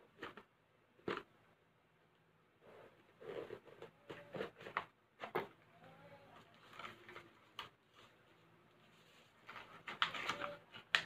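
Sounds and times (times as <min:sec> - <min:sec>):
paper wrapping rustling: 0:06.4 - 0:11.0.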